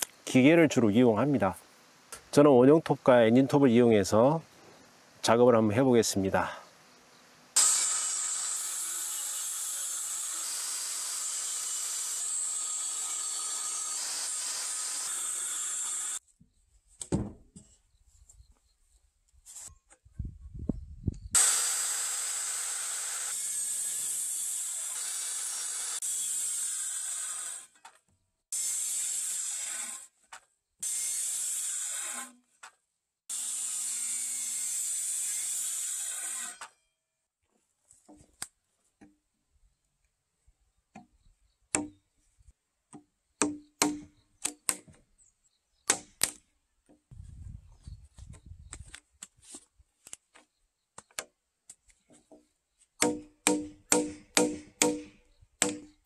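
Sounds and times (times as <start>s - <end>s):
circular saw cutting wood: 7.6s - 16.2s, 21.4s - 27.8s, 28.5s - 30.2s, 30.8s - 32.4s, 33.3s - 36.8s.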